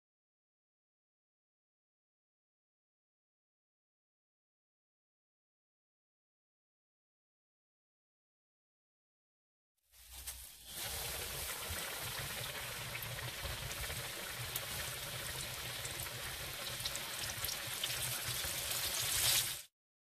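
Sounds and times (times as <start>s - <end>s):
fish sizzling in hot oil: 10.0s - 19.7s.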